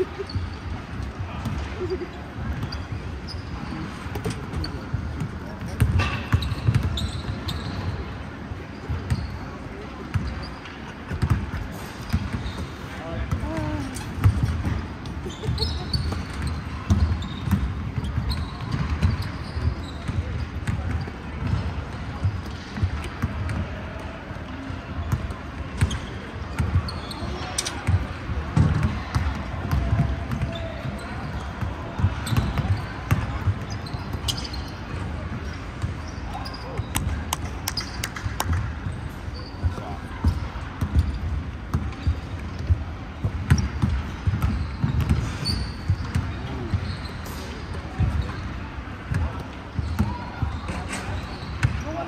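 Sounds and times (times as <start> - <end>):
basketballs bouncing on wooden floor: 0.0 - 8.1, 11.1 - 12.6, 13.2 - 24.1, 27.9 - 39.0, 39.6 - 47.0
short high squeaks: 6.2 - 8.0, 33.7 - 34.8, 44.6 - 47.6.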